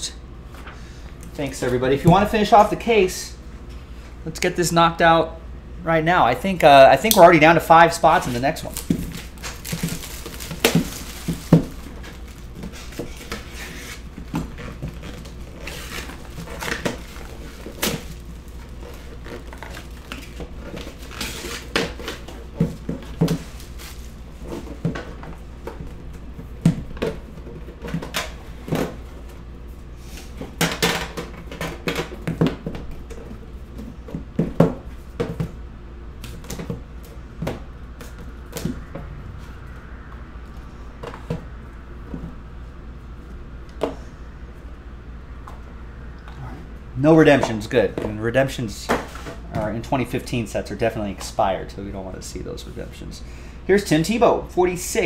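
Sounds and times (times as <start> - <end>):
steady low hum: 0.0 - 55.0
plastic shrink-wrap crinkling: 8.6 - 13.8.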